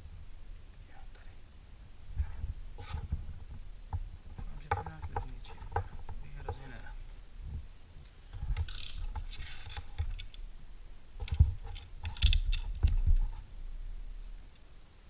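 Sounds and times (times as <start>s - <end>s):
sharp clicks and knocks: 2.8s - 6.8s, 11.2s - 13.4s
clicks and taps on wooden table: 4.4s - 6.7s.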